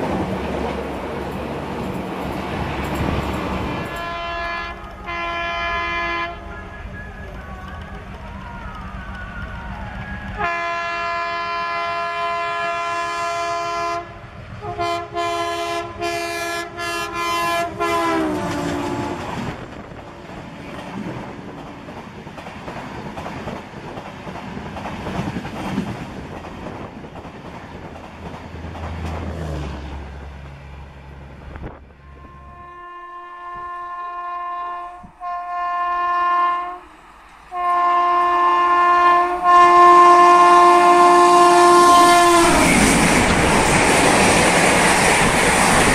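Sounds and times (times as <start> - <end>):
train coaches rushing and clattering: 0.0 - 13.4, 14.3 - 31.9, 39.0 - 45.9
locomotive horn blasts: 3.8 - 6.6, 10.4 - 19.4, 32.0 - 36.9, 37.5 - 42.8.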